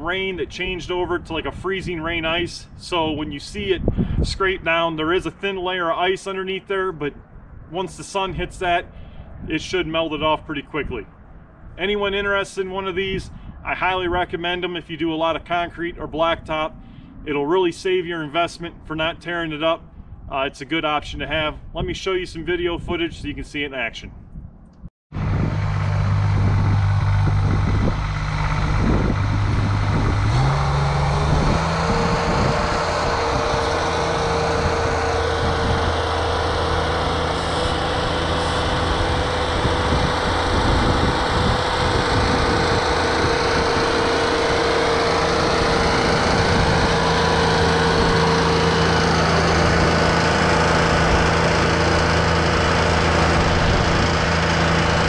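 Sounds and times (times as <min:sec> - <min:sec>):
tractor engine running: 0:25.1 - 0:55.0.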